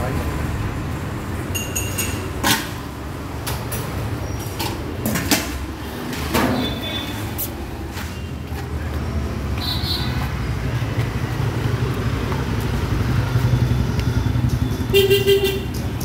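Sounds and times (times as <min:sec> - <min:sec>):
metal lids clinking on glass jars: 0:01.6 - 0:02.7.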